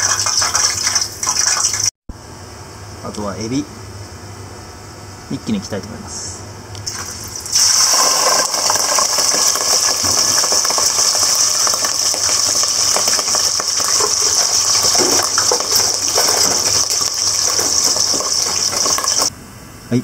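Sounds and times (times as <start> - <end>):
shrimp deep-frying in hot oil: 0.0 - 1.9, 6.8 - 19.3.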